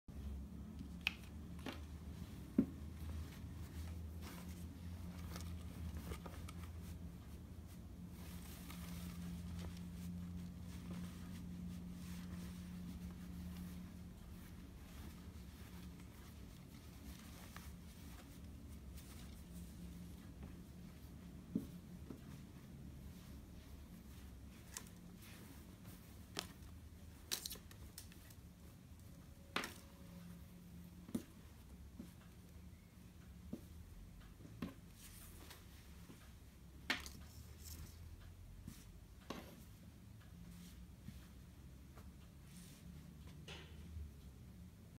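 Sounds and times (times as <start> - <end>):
steady low hum: 0.1 - 27.2
clothing rustling: 1.2 - 33.7, 34.5 - 43.3.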